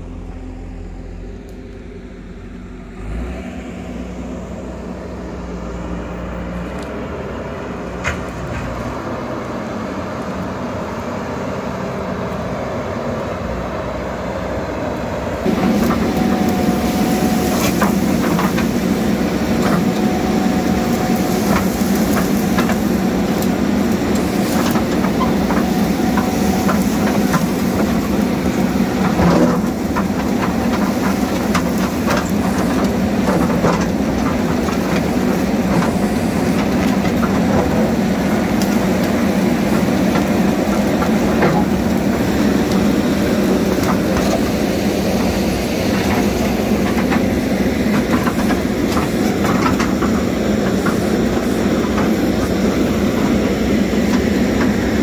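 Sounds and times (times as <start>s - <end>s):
diesel engine under load: 0.0s - 55.0s
bucket scraping dirt and stones: 15.4s - 55.0s.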